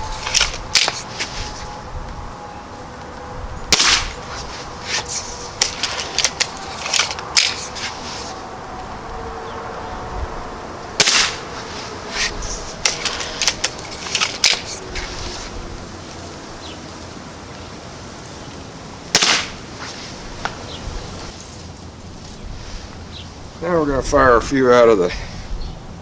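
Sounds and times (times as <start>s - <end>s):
air rifle shots: 3.7s - 7.9s, 11.0s - 11.5s, 19.1s - 19.6s.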